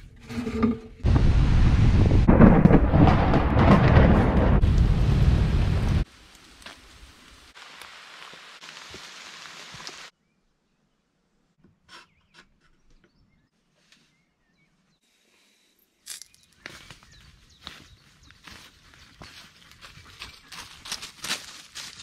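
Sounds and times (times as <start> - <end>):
deep thunder rumble: 1.0 - 6.0
rain through forest leaves: 4.6 - 10.1, 17.6 - 22.0.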